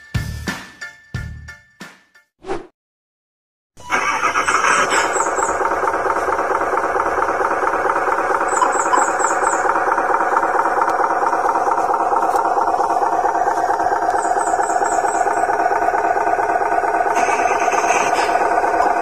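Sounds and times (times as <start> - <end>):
electric motor whine with rattle: 5.0 - 19.0.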